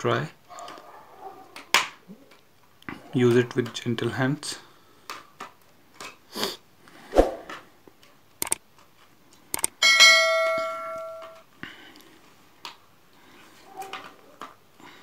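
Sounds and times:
bell chime: 9.8 - 11.4.

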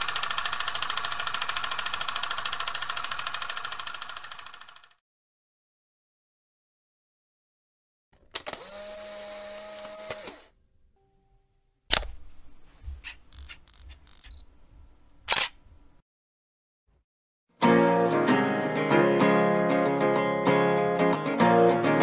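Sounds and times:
camera mechanical whir: 0.0 - 4.9, 8.3 - 10.5, 13.0 - 14.5, 15.1 - 15.6
camera shutter click: 15.3 - 15.6.

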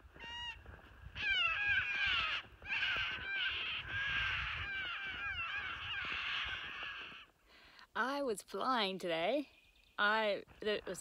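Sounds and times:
cockatoos calling harshly: 0.2 - 0.6, 1.2 - 7.3.

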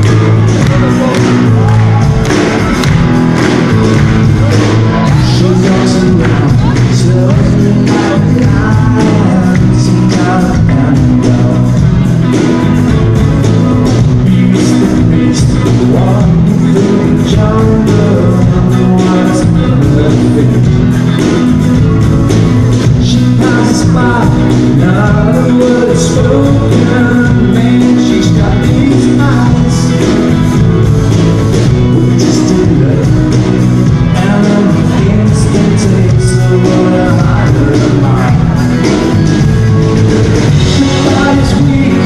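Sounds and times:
male lead vocal: 0.0 - 3.0, 3.7 - 12.4, 13.9 - 21.5, 22.7 - 30.7, 31.5 - 42.0
live soft rock band: 0.0 - 42.0.

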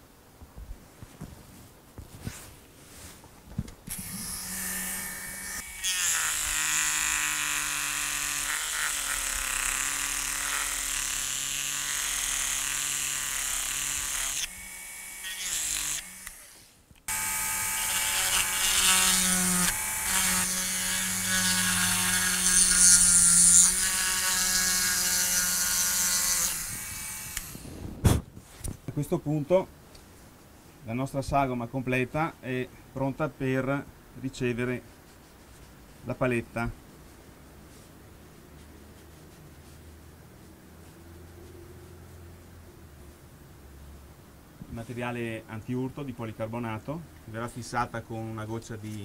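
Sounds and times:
rotary tool cutting wood: 3.9 - 27.8.

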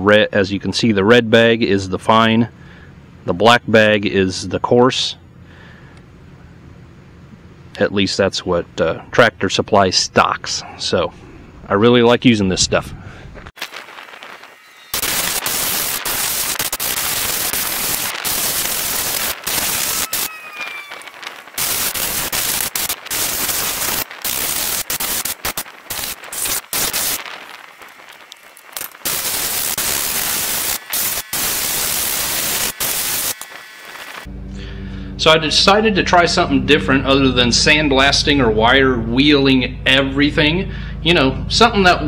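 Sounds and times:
abrasive blaster hissing: 13.6 - 34.3.

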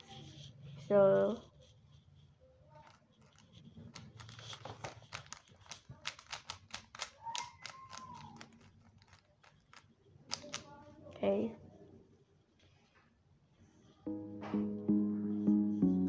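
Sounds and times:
rubik's cube plastic clicks: 2.8 - 11.2.

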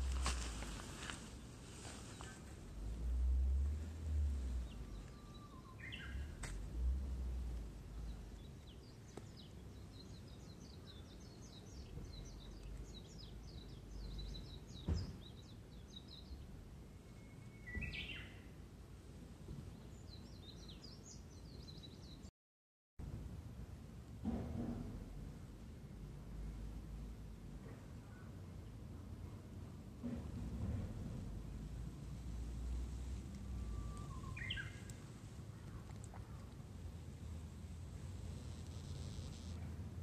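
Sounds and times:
small birds chirping: 4.6 - 6.4, 7.9 - 16.4, 19.7 - 22.3, 32.6 - 37.4
sharp knock: 24.2 - 25.0.

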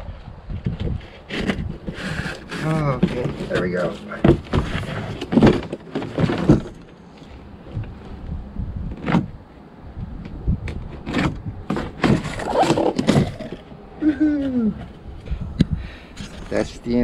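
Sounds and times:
cardboard scraping and rustling: 0.9 - 8.2, 10.7 - 13.7.

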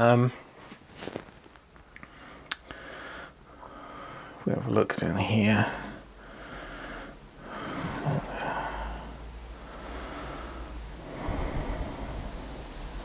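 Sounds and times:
soft breathing: 0.3 - 4.5, 5.5 - 13.0
rustling close to microphone: 0.4 - 1.8.

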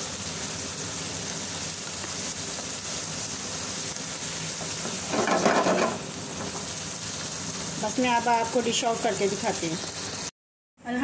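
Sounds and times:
food sizzling in oil: 0.0 - 10.4
spatula stirring in a pan: 4.2 - 8.2.

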